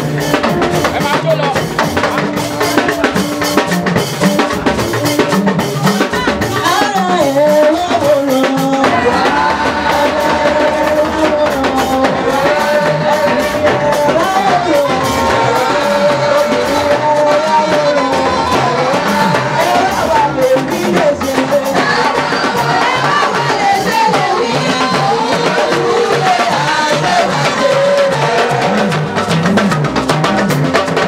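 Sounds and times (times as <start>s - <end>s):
drums: 0.0s - 31.0s
choir singing: 8.0s - 29.5s.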